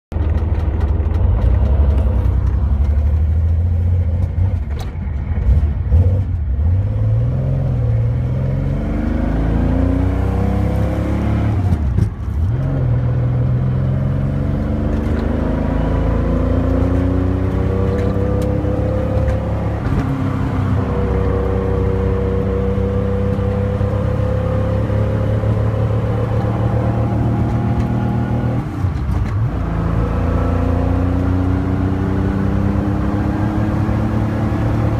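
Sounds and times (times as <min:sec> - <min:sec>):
car engine accelerating: 0:00.1 - 0:34.9.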